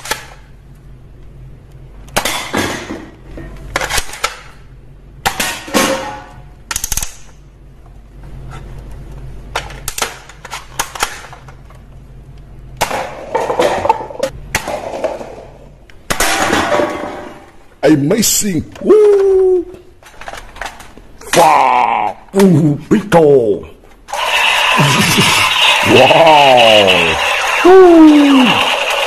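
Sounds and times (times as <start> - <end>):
toy blaster pumping and firing: 24.1 - 29.0.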